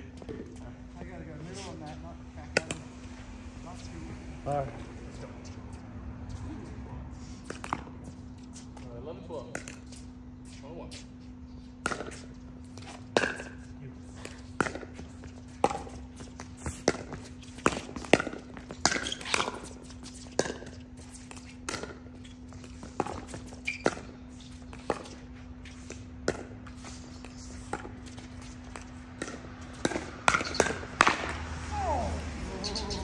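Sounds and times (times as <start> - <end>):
paddles hitting plastic ball: 28.7 - 33.0.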